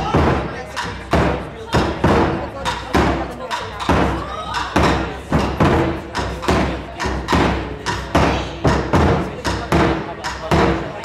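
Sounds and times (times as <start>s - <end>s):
taiko drums beating: 0.0s - 11.0s.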